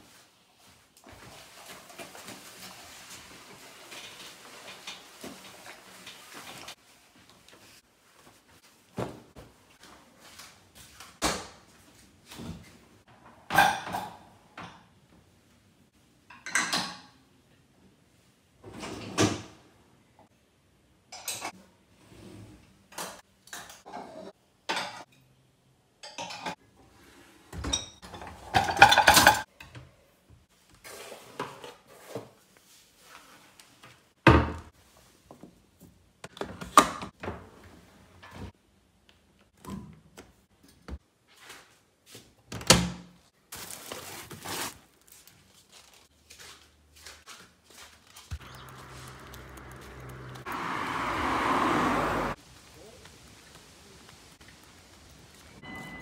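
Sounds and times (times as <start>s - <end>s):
dishes and cutlery clattering: 16.3s - 17.2s, 23.1s - 25.3s, 26.0s - 26.6s, 27.6s - 29.5s.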